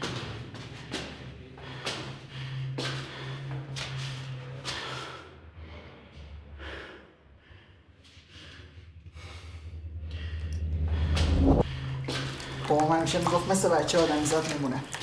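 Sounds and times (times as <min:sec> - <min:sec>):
man breathing heavily: 0:00.0 - 0:12.7
low steady hum: 0:08.3 - 0:15.0.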